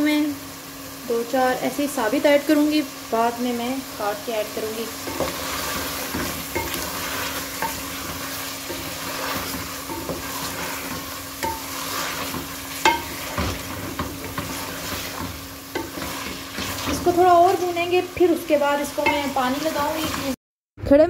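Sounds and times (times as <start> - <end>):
food sizzling in a pot: 0.0 - 20.4
wooden spoon scraping: 5.0 - 20.4
spoon knocking against pot: 12.3 - 14.6, 15.2 - 16.1.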